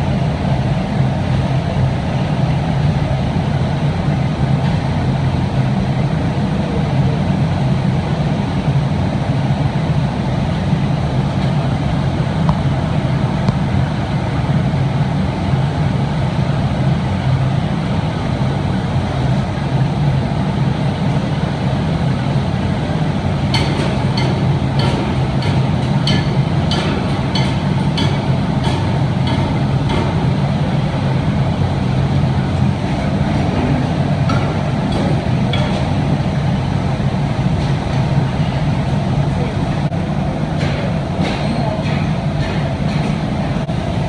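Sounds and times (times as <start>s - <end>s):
furnaces and blowers roaring: 0.0s - 44.0s.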